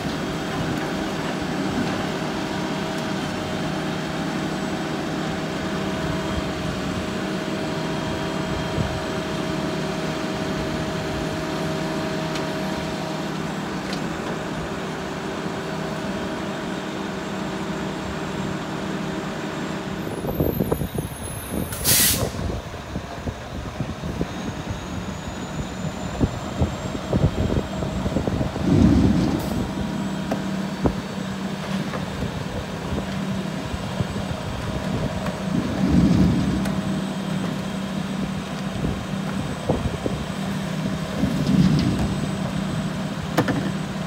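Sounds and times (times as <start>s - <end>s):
diesel truck engine running: 0.0s - 44.0s
air brake hiss: 21.0s - 22.6s.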